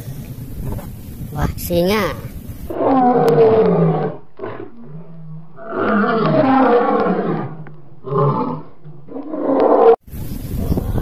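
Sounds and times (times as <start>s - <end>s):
lion roaring: 2.7s - 10.0s.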